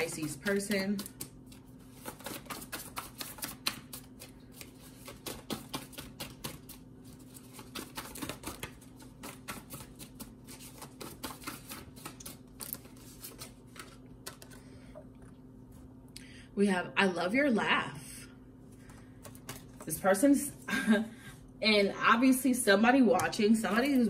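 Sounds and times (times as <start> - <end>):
cards being shuffled: 0.0 - 14.6, 19.0 - 19.9.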